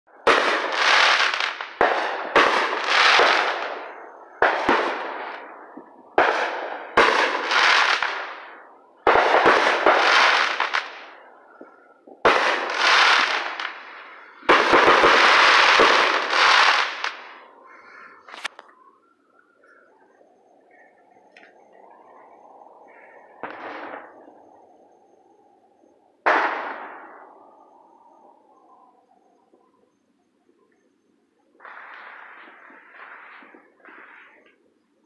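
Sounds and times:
fireworks bangs: 0.1 - 18.6, 22.8 - 24.7, 26.2 - 27.4, 31.6 - 34.6
fireworks crackling: 0.1 - 19.0, 20.7 - 24.6, 31.6 - 34.7.

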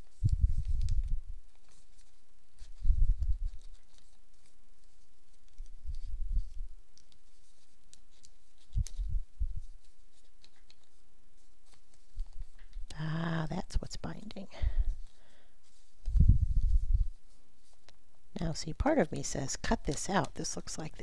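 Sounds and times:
paper rustling and ticking: 0.0 - 13.0.

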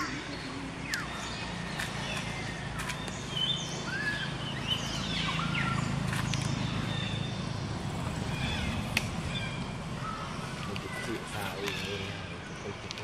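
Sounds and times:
birds chirping and whistling: 0.0 - 13.0.

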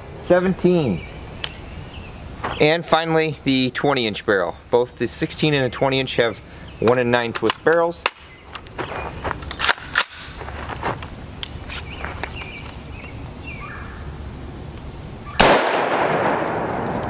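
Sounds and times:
rifle shot with echo: 15.4 - 17.0.

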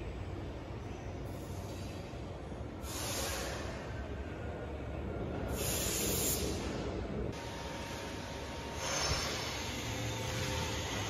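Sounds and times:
loud hiss: 2.8 - 3.8, 5.5 - 6.8
line boring machine rumbling: 7.4 - 11.0.

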